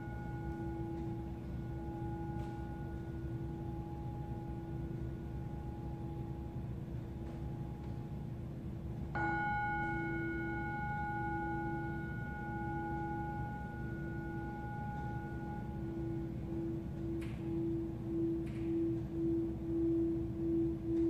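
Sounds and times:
lower ringing tone: 0:00.0 - 0:21.0
singing bowl ringing: 0:00.0 - 0:21.0.

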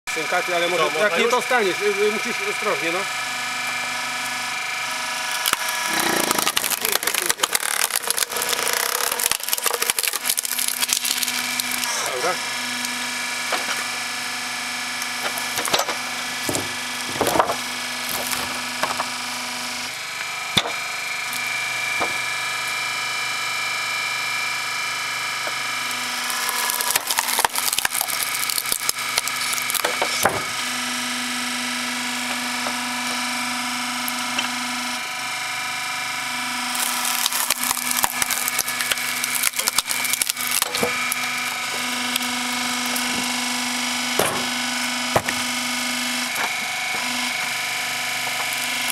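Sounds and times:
hydraulic pump humming: 0:00.1 - 0:48.9
wood cracking and splintering: 0:05.2 - 0:12.0, 0:14.6 - 0:19.2, 0:25.3 - 0:31.4, 0:36.7 - 0:48.9
wood knocking on steel: 0:44.2 - 0:44.5.

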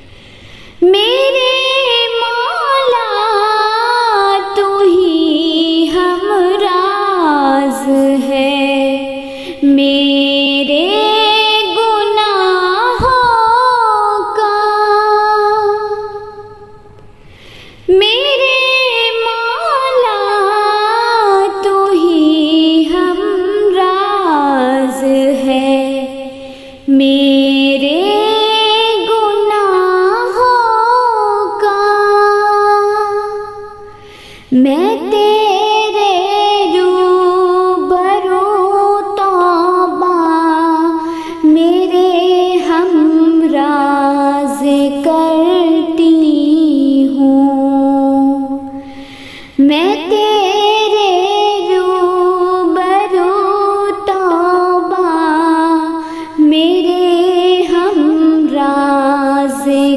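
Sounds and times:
woman singing unaccompanied: 0:00.8 - 0:16.8, 0:17.9 - 0:59.9.

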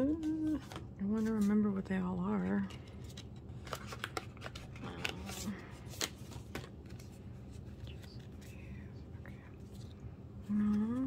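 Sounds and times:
cards clicking and rustling: 0:02.6 - 0:08.6.

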